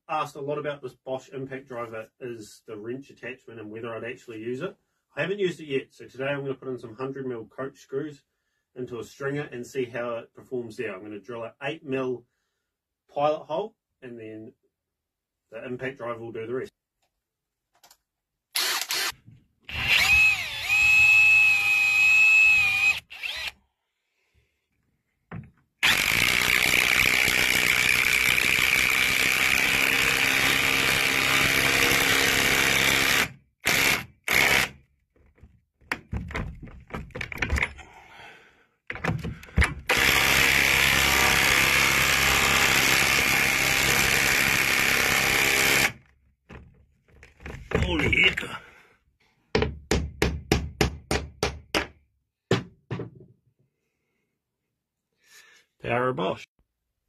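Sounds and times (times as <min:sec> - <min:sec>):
drill whining: 0:18.5 - 0:23.6, 0:25.8 - 0:34.8, 0:39.0 - 0:46.1
impact driver hammering screws: 0:18.6 - 0:23.5, 0:25.8 - 0:37.7, 0:38.9 - 0:46.1.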